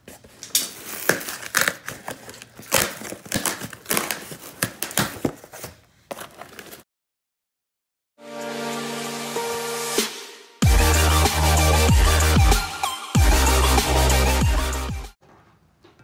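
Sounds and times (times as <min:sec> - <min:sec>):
cardboard tearing and crinkling: 0:00.0 - 0:06.8
packing tape ripping: 0:00.2 - 0:05.5.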